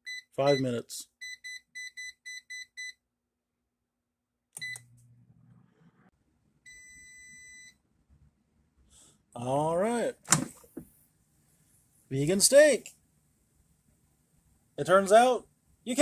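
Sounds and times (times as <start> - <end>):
air fryer control panel beeping: 4.6 - 4.9.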